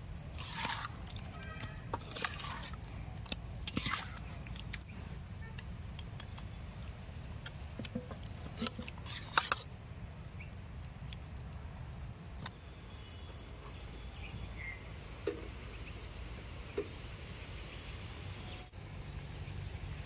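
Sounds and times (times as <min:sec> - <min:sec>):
wet squelches: 0:00.0 - 0:05.0.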